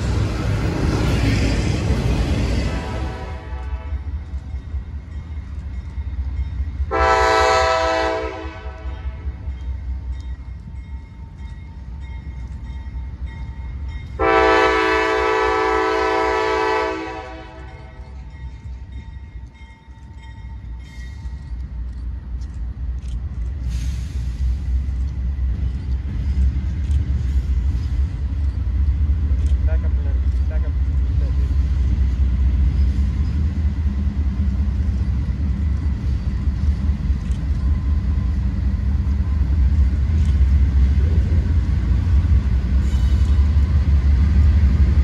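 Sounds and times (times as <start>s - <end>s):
train rumble: 0.0s - 45.0s
train air horn: 2.8s - 4.1s, 6.9s - 9.4s, 14.2s - 18.1s.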